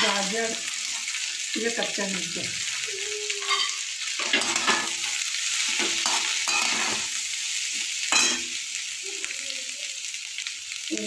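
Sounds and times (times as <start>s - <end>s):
vegetables sizzling in oil: 0.0s - 11.0s
metal spatula scraping pan: 3.4s - 7.2s.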